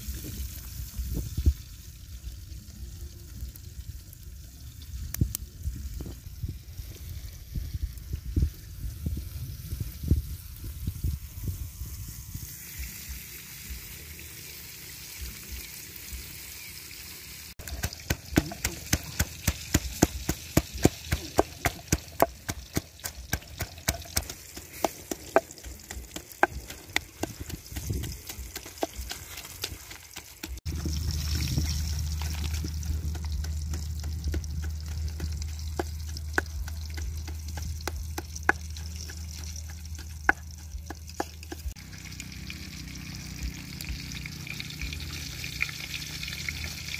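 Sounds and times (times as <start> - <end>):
pestle pounding in stone mortar: 17.6 - 41.8
low rumble: 30.6 - 39.0.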